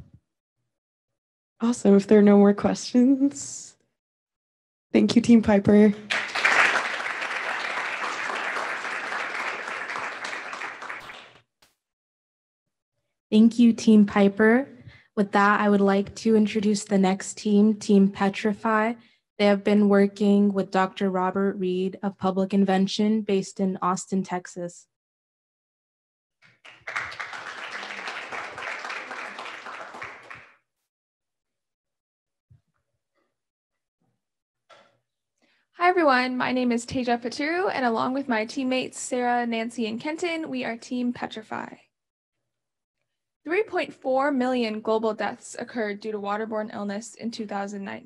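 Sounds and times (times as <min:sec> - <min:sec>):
audience applauding: 0:06.1 - 0:11.4, 0:26.4 - 0:30.6.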